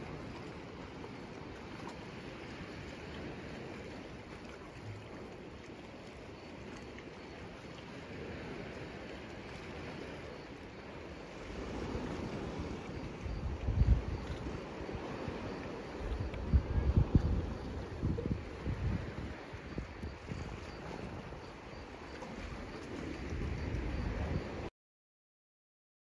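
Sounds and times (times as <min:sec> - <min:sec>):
sea water washing: 0:00.0 - 0:24.7
wind buffeting microphone: 0:08.1 - 0:24.7.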